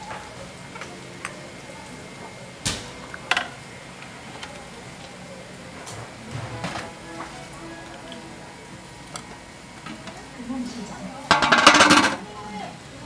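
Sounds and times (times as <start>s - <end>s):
metal ladle knocking on pot: 11.3s - 12.2s.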